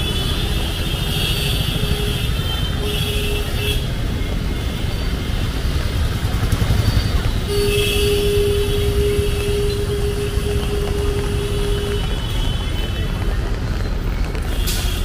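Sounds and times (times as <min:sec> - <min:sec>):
street traffic rumbling: 0:00.0 - 0:15.0
vehicle horn long blast: 0:07.5 - 0:12.8.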